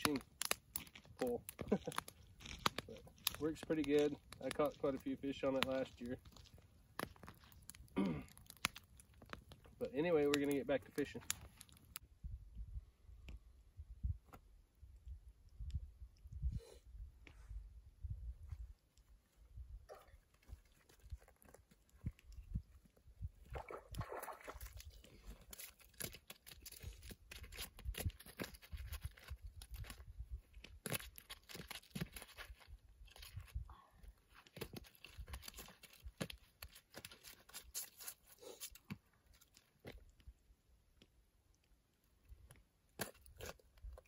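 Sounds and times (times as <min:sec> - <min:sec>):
crunching and crackling: 0:00.0 - 0:12.0, 0:18.5 - 0:44.0.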